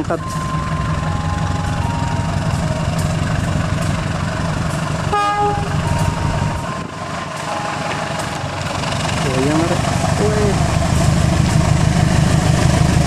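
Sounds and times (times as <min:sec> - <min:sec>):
diesel locomotive idling: 0:00.0 - 0:13.0
locomotive horn blast: 0:05.1 - 0:08.6.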